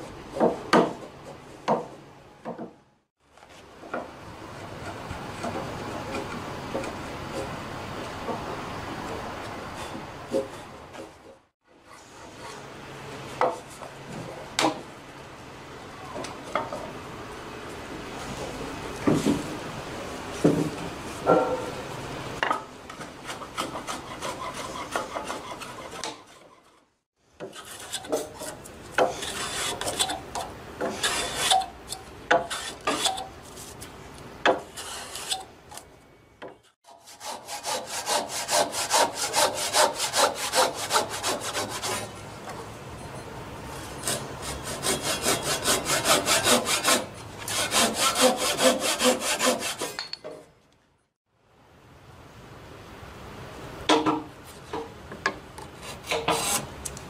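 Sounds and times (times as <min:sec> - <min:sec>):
hand plane shaving wood: 0:23.2 - 0:26.7, 0:36.9 - 0:42.2, 0:44.0 - 0:49.9.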